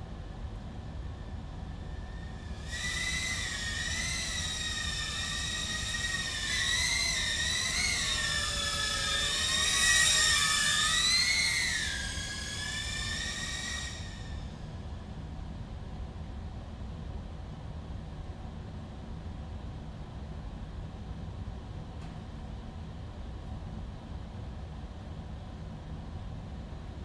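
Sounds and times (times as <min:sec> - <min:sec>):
drone motors whining: 0:01.2 - 0:14.7.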